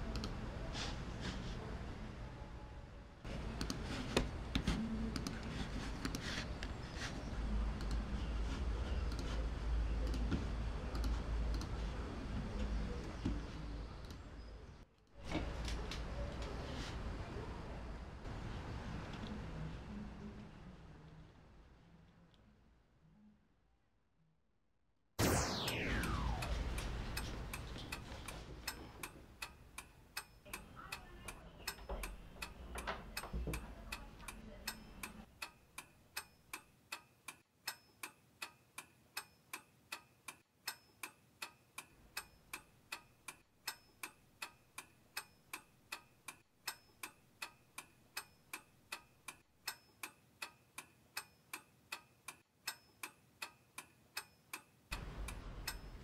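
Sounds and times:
low rumble: 25.2 - 28.7
clock ticking: 25.4 - 56.0.

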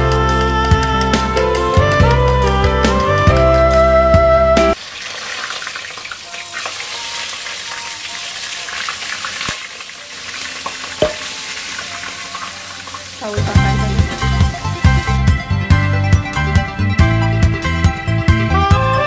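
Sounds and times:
background music: 0.0 - 4.8, 6.8 - 19.0
sausages sizzling in oil: 4.8 - 15.2.

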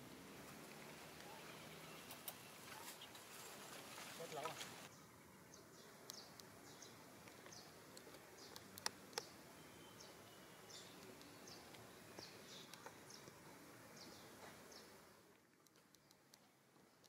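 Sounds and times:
steady low hiss: 0.0 - 17.0
sharp clicks: 7.3 - 9.3.

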